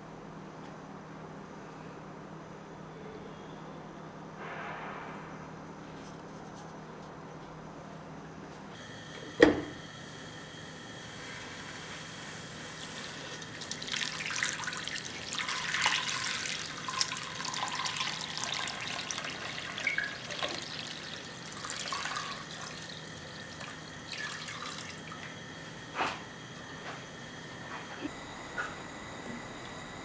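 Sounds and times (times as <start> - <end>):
water pouring into a pot: 12.7 - 25.4.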